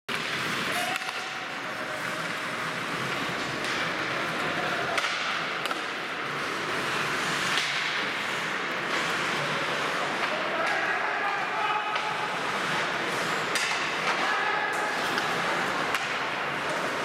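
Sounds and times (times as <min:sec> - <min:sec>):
hockey sticks clacking: 0:00.1 - 0:17.0
skates hissing on ice: 0:05.8 - 0:10.4.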